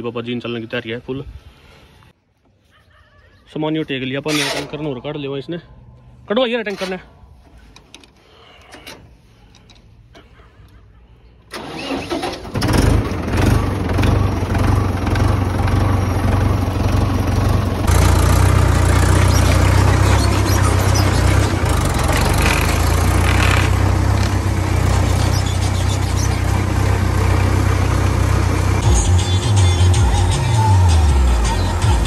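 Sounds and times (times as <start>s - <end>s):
tractor diesel engine starting: 11.4s - 32.0s
diesel engine running: 11.5s - 32.0s.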